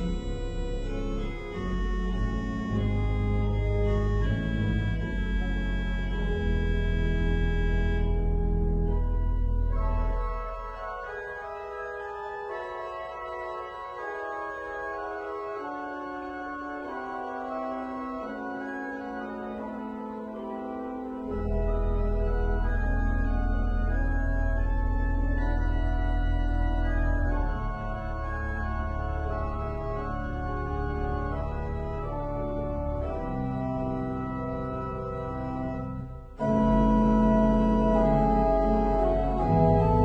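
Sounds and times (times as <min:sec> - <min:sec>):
pipe organ playing: 0:00.0 - 0:40.0.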